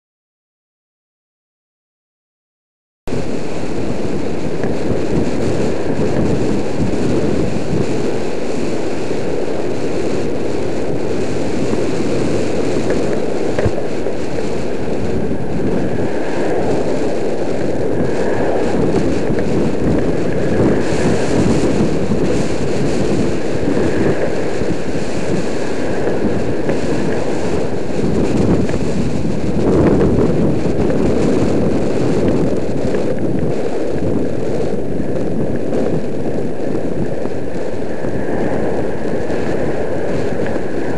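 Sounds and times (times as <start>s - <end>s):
road noise: 3.1s - 40.9s
wind noise on microphone: 3.1s - 40.9s.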